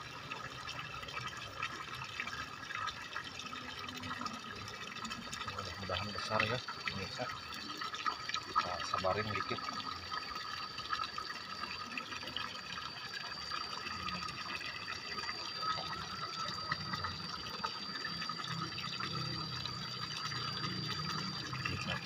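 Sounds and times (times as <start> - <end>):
water trickling: 0.0 - 22.0
thin high tone: 13.3 - 22.0.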